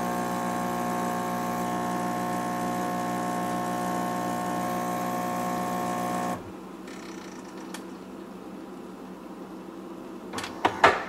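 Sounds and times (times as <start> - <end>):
espresso machine pump humming: 0.0 - 6.6.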